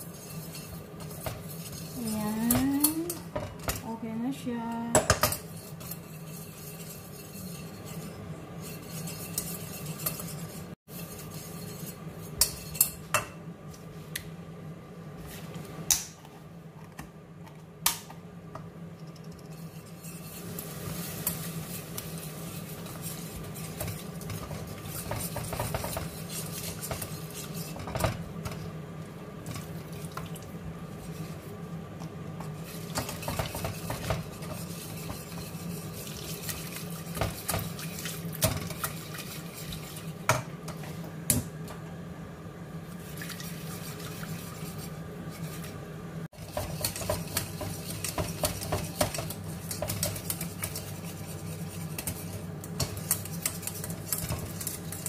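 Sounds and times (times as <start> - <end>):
whisk scraping in a saucepan: 0.0 - 3.7, 5.2 - 13.1, 19.4 - 28.7, 29.4 - 41.0, 42.8 - 55.0
whisk clinking against pan: 0.0 - 3.8, 5.0 - 13.3, 19.1 - 28.2, 32.6 - 40.4, 46.4 - 55.0.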